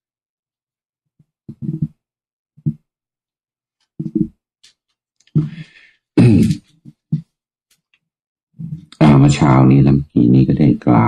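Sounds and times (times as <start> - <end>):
man making low vocal sounds: 6.2 - 6.6.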